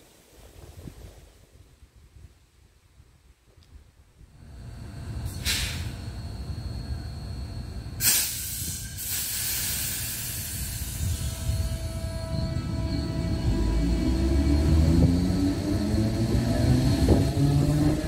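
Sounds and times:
train low rumble: 0.0s - 18.0s
compressed air hiss: 5.3s - 5.9s, 8.0s - 11.7s.

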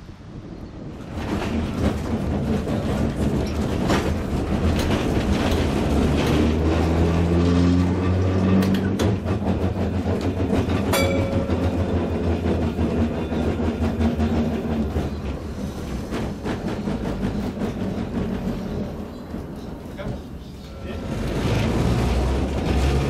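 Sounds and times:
tram motor hum: 0.8s - 23.0s
wheel clatter: 1.0s - 7.0s, 8.5s - 23.0s.

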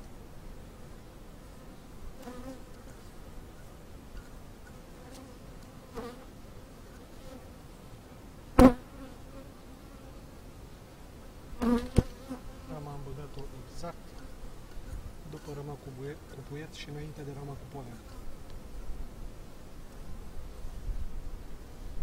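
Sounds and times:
bee buzzing close past: 1.6s - 3.1s, 4.2s - 7.6s, 8.5s - 10.4s, 11.5s - 13.1s
honeybees buzzing: 11.2s - 22.0s.

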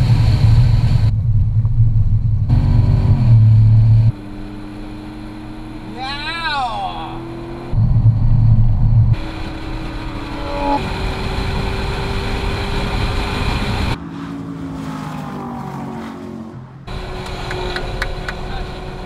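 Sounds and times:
racing car engine: 2.4s - 19.0s
car passing by: 12.7s - 19.0s.

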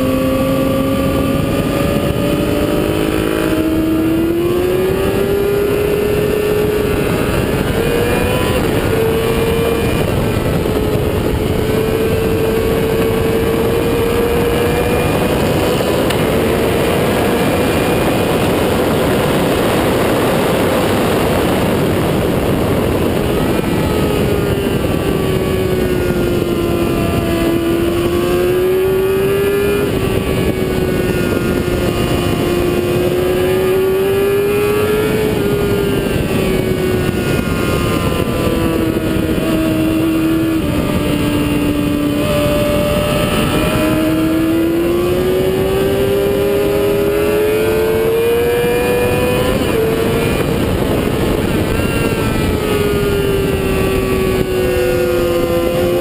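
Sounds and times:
heavy wind noise: 0.0s - 56.0s
motorcycle engine running hard: 0.0s - 56.0s.

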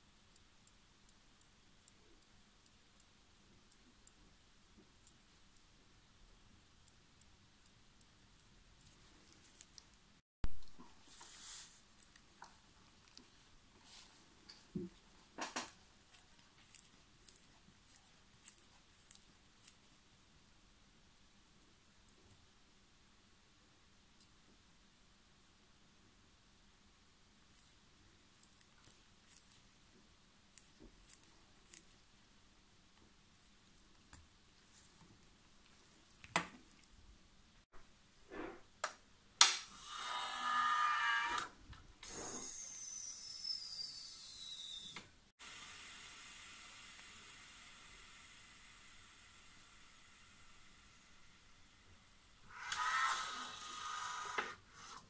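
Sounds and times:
air hissing with thin whistle: 42.0s - 55.0s
machine whirring: 52.5s - 55.0s.

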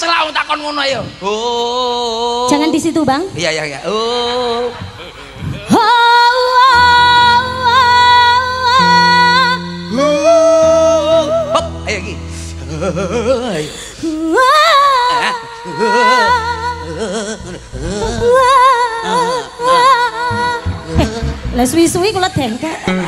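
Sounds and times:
person singing with vibrato: 3.9s - 23.0s
accompaniment with held low notes: 15.2s - 23.0s.

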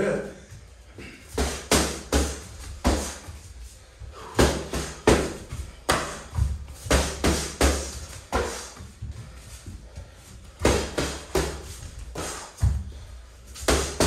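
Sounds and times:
punches smacking boxing gloves: 1.3s - 3.3s, 4.2s - 8.9s, 10.6s - 12.9s, 13.5s - 14.0s.

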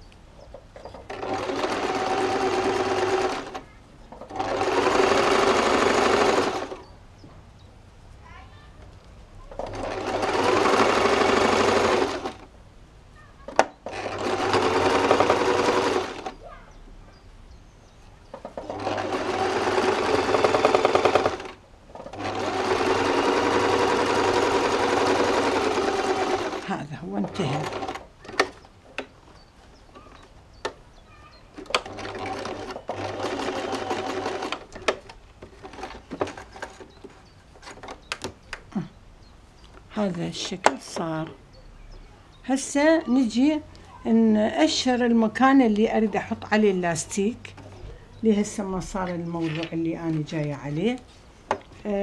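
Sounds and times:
sewing machine stitching: 0.9s - 6.8s, 9.5s - 12.4s, 13.5s - 16.4s, 18.4s - 28.6s, 31.6s - 36.9s.

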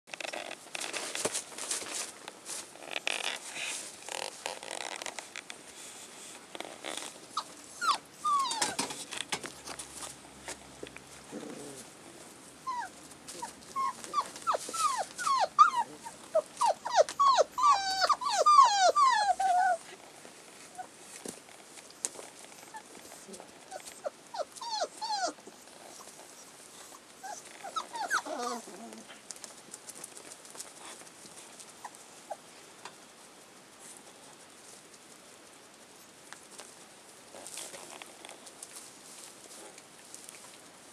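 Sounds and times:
puppies yelping and squealing: 7.4s - 8.8s, 12.7s - 19.8s, 23.7s - 25.4s, 27.2s - 28.8s.

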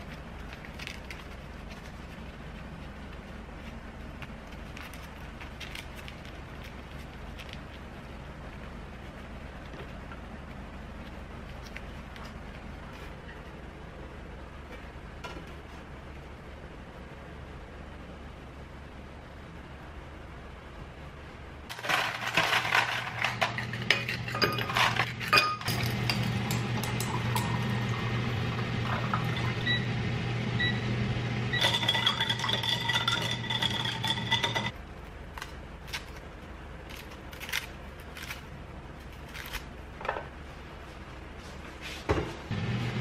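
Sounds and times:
low hum: 10.2s - 35.2s
dishes and glassware clinking: 22.4s - 27.5s, 31.6s - 34.7s.

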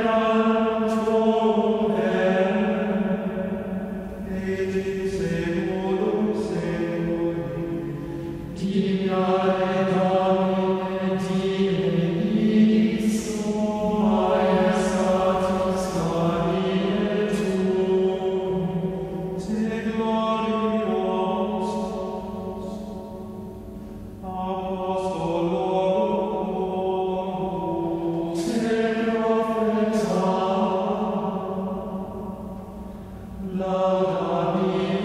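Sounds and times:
choir singing slow chant: 0.0s - 35.0s.

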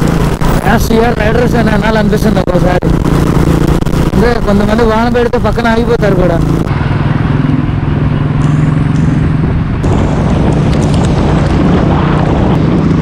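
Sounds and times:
motorcycle engine drone: 0.0s - 13.0s
road and wind noise: 0.0s - 13.0s.

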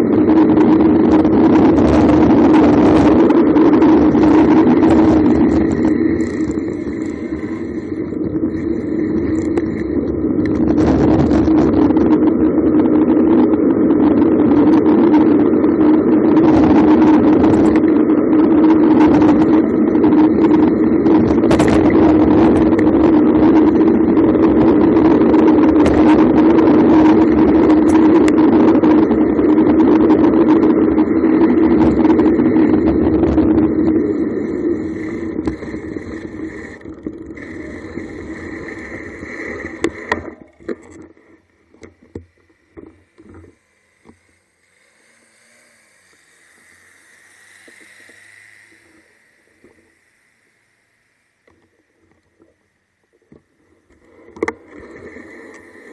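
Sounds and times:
wind rushing over microphone: 0.0s - 40.8s
bicycle tyre hum on asphalt: 0.0s - 55.9s.

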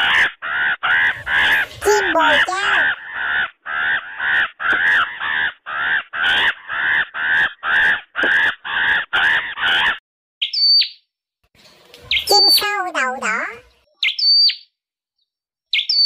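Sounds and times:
bird harsh calls: 0.0s - 11.0s, 12.0s - 14.7s, 15.7s - 16.0s.

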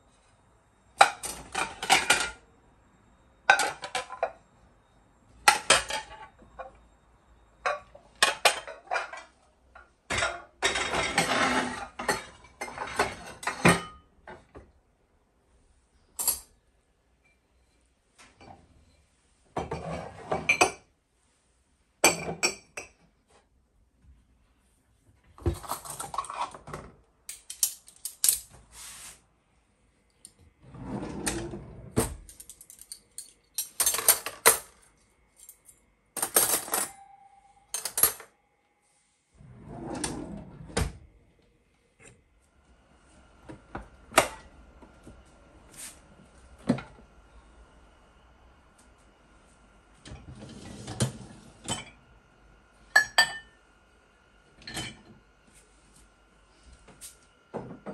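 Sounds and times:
dishes and utensils clinking: 7.7s - 9.4s, 53.0s - 53.6s.

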